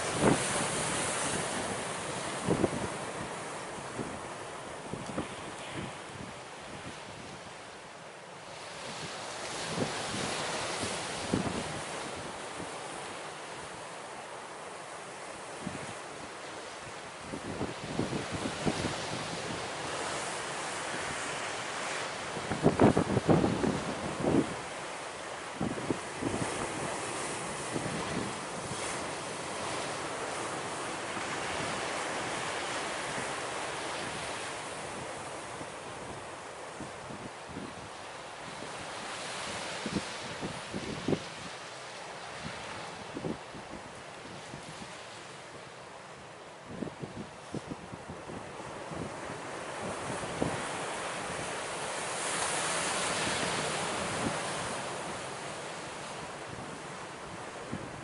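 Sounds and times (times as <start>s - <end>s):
wind buffeting microphone: 0.0s - 4.3s
surf breaking on rocky shore: 0.0s - 6.3s
ocean surf breaking on rocks: 0.0s - 58.0s.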